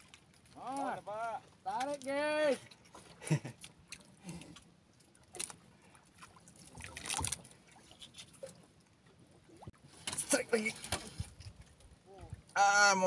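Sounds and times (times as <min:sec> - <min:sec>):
water trickling and splashing: 0:00.0 - 0:13.0.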